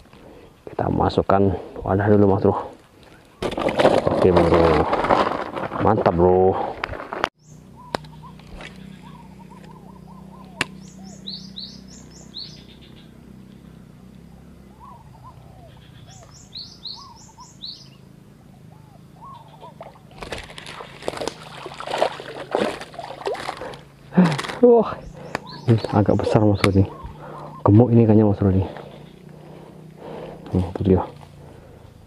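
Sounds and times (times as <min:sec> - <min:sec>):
birds chirping: 0:07.4 - 0:32.0
fish splashing in water: 0:19.7 - 0:24.5.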